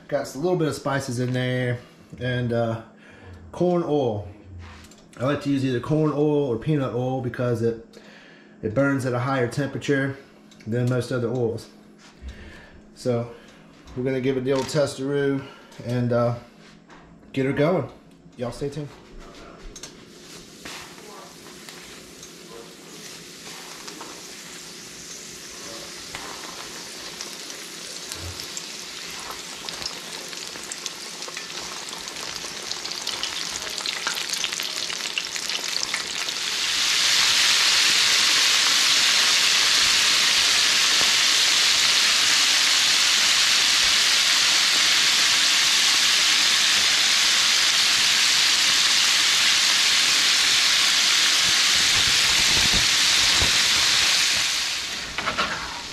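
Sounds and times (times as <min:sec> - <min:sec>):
fish deep-frying sizzling: 0:20.1 - 0:55.9.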